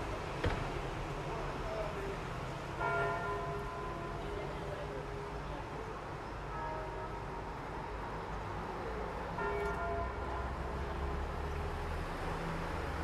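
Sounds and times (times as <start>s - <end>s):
street traffic rumble: 0.0s - 13.0s
church bell striking: 2.8s - 4.3s, 9.4s - 11.0s.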